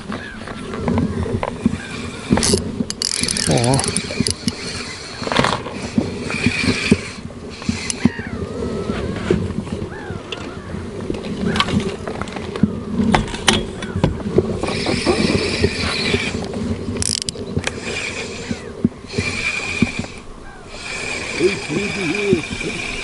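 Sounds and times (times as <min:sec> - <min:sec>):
fishing reel gears whirring: 0:01.6 - 0:08.9, 0:14.6 - 0:23.0
clicks and knocks of gear handled: 0:02.3 - 0:04.6, 0:17.0 - 0:17.8.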